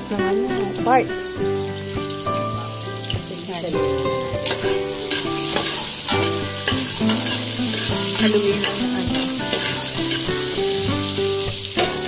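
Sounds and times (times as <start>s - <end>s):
garlic and onion sizzling in oil: 0.0s - 12.0s
metal spoon clinking on pot: 4.4s - 10.6s.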